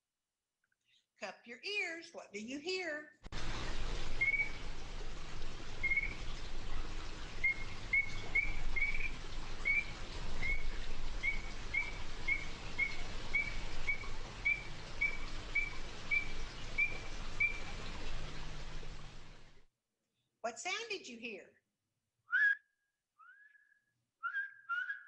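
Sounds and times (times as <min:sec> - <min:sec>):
background hiss: 0:03.3 - 0:19.6
frog calling whistled notes: 0:04.2 - 0:04.6, 0:05.8 - 0:06.2, 0:07.4 - 0:17.8, 0:22.3 - 0:22.6, 0:23.2 - 0:25.0.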